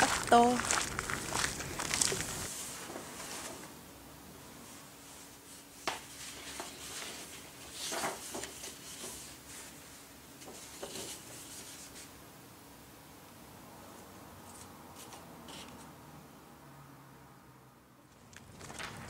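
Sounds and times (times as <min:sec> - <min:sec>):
paper rustling: 0:05.3 - 0:12.1, 0:18.2 - 0:19.0.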